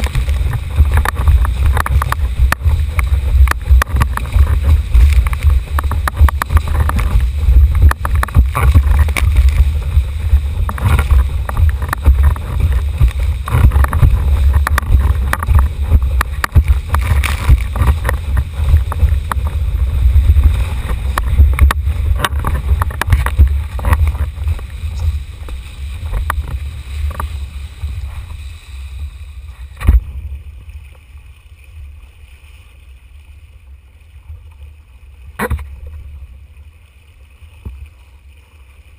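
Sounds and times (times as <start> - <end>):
wind buffeting microphone: 0.0 - 30.8
water rushing: 0.0 - 38.9.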